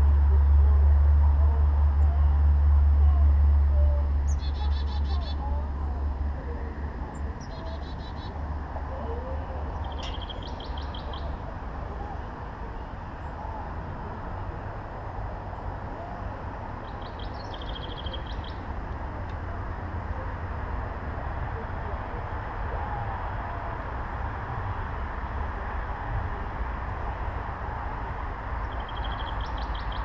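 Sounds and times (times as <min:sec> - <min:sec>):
low background noise: 0:00.0 - 0:30.0
songbird trills: 0:03.7 - 0:13.7, 0:16.2 - 0:18.7, 0:28.6 - 0:30.0.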